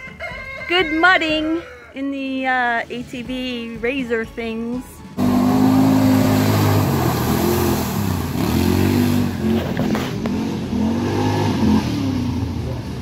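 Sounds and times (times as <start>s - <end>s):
utility vehicle engine revving: 5.2s - 13.0s.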